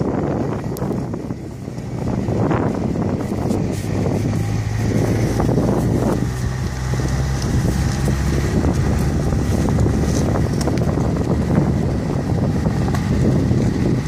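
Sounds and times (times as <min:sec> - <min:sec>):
car engine drone: 0:00.0 - 0:14.0
wind buffeting microphone: 0:00.0 - 0:14.0
tyres crunching over leaves and stones: 0:01.8 - 0:12.1.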